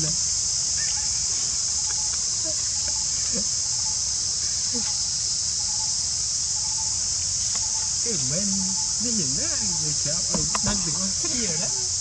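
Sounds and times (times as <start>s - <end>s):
people talking: 0.0s - 0.2s, 4.7s - 5.0s, 8.0s - 12.0s
insect chorus drone: 0.0s - 12.0s.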